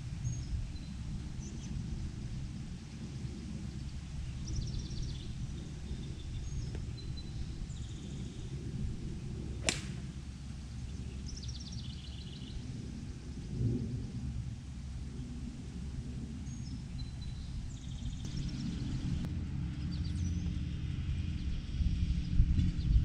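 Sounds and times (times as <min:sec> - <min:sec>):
low outdoor rumble: 0:00.0 - 0:23.0
golf club striking ball: 0:09.6 - 0:10.4.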